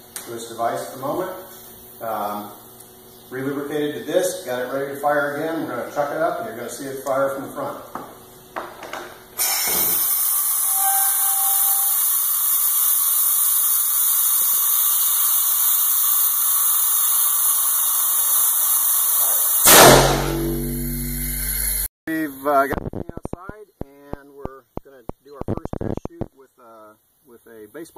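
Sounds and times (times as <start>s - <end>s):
compressed air hissing: 9.4s - 20.2s
air cannon blast: 19.6s - 21.8s.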